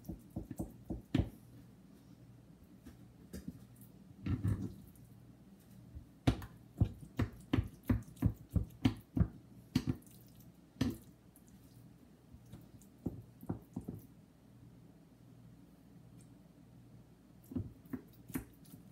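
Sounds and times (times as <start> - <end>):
knife chopping on plastic board: 0.0 - 1.4, 6.2 - 10.0.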